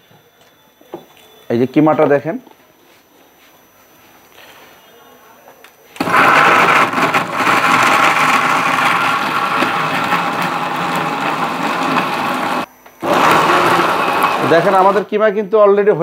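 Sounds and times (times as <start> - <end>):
mixer grinder motor running: 6.0 - 15.1.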